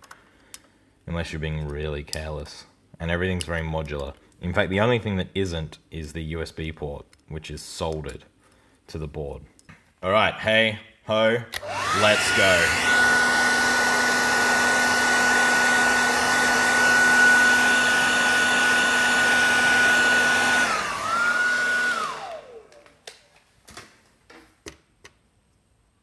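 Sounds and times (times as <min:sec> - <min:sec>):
heat gun whining: 0:11.5 - 0:23.1.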